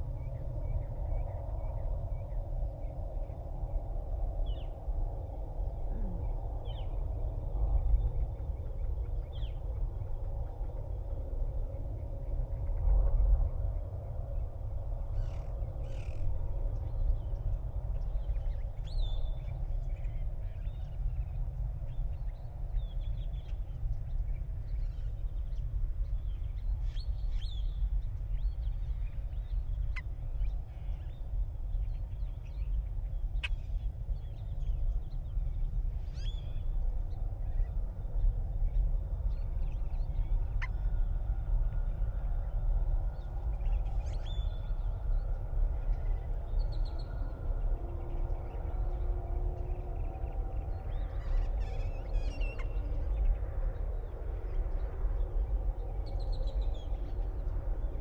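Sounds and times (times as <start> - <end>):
steady low rumble: 0.0 - 58.0.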